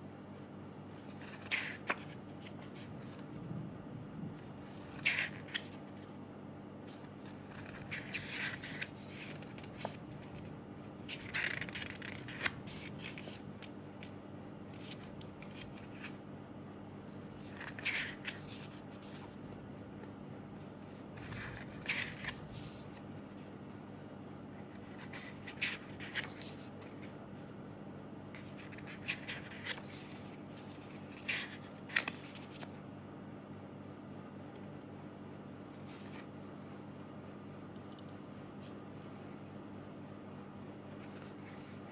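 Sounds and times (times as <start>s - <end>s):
faint steady hum: 0.0s - 41.9s
paper pages rustling: 0.9s - 3.4s, 4.3s - 6.1s, 6.8s - 16.2s, 17.2s - 23.6s, 24.6s - 27.5s, 28.3s - 32.7s, 35.7s - 36.3s, 40.9s - 41.9s.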